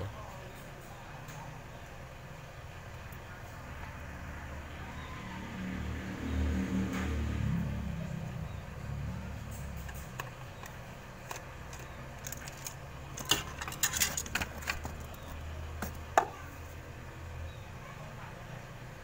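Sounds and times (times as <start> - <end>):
clicks and clinks of handling parts: 9.5 - 16.0.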